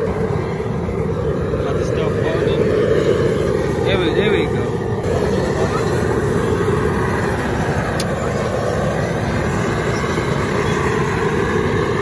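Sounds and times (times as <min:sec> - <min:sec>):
propane burner roaring: 0:00.0 - 0:12.0.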